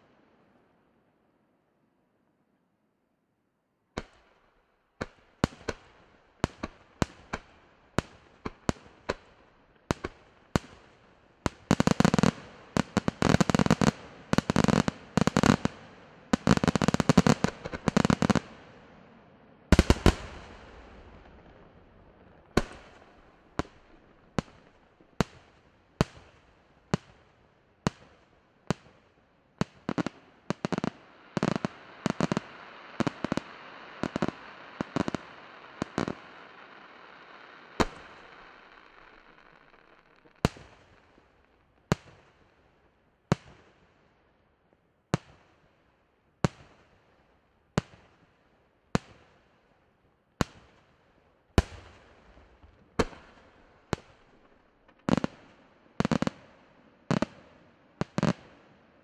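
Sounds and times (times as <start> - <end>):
fireworks bangs: 19.7 - 25.4, 29.6 - 41.0
rapid-fire firework bangs: 37.8 - 39.4.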